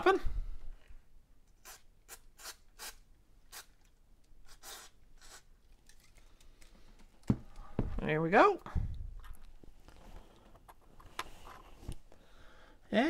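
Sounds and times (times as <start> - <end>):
aerosol can spraying: 1.6 - 3.7, 4.5 - 5.5.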